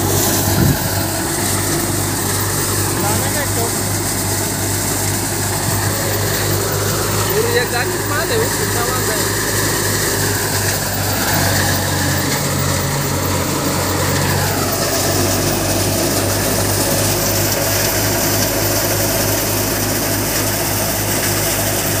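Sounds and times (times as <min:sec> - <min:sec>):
machine whine: 0:00.0 - 0:22.0
threshing machine droning: 0:00.0 - 0:22.0.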